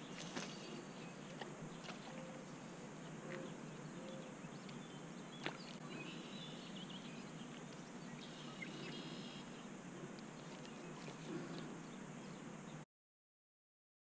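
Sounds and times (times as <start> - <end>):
faint bird chirps: 0.0 - 9.6
steady low hiss: 0.0 - 12.8.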